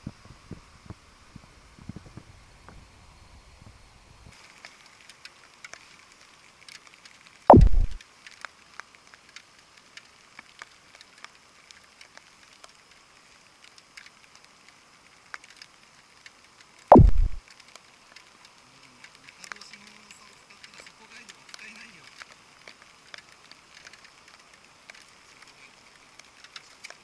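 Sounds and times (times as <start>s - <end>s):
faint steady hiss: 0.0s - 27.0s
small clicks of fishing tackle: 4.4s - 7.4s, 8.0s - 27.0s
falling-tone sound effect: 7.5s - 8.0s, 16.9s - 17.4s.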